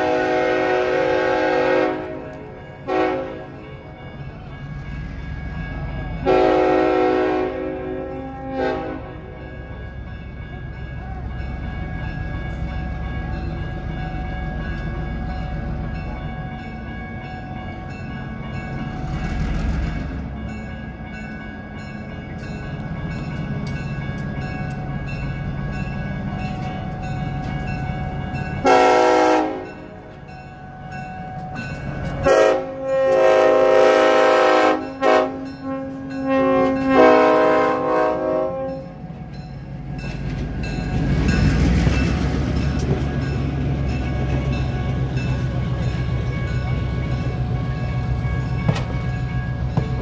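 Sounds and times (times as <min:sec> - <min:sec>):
multi-note air horn blasts: 0:00.0 - 0:02.3, 0:02.9 - 0:03.4, 0:06.2 - 0:09.2, 0:28.6 - 0:29.7, 0:32.3 - 0:38.8
diesel locomotive engine running: 0:00.0 - 0:50.0
train wheels rumbling past: 0:00.0 - 0:50.0.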